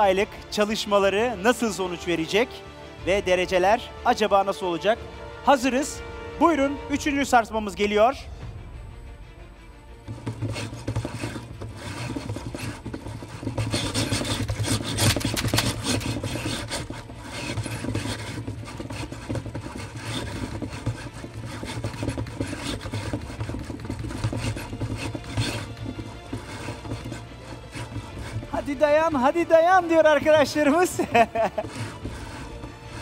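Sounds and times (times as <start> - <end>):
wooden model tower rattling: 10.1 - 33.0.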